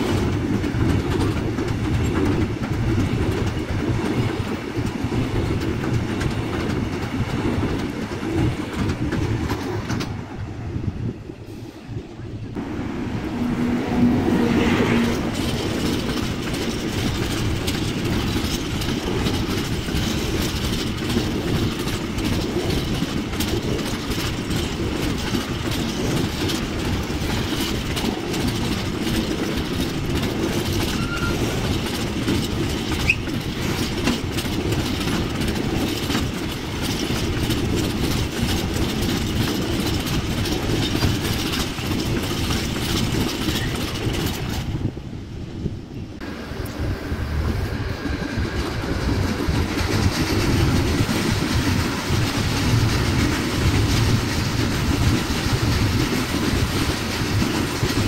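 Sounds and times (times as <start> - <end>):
wheels clicking over rail joints: 0.0 - 10.4, 14.4 - 58.0
train wheels rumbling on rails: 0.0 - 58.0
wheel squeal: 30.8 - 31.6, 33.0 - 33.4.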